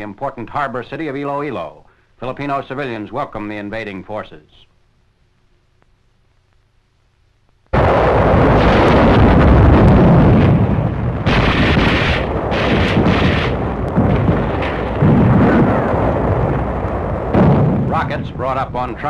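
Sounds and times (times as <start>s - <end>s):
explosions: 7.8s - 19.0s
heavy gunfire: 7.8s - 19.0s.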